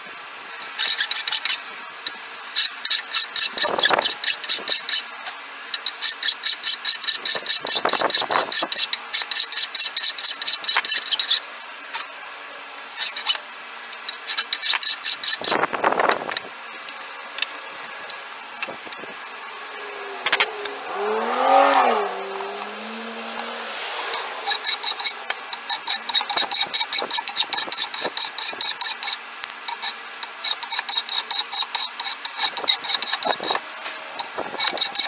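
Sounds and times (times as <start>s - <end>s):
engine: 0.0s - 35.0s
file rasping over wood: 0.8s - 1.6s, 2.5s - 5.0s, 5.8s - 11.4s, 13.0s - 13.4s, 14.1s - 15.7s, 20.2s - 33.6s, 34.2s - 35.0s.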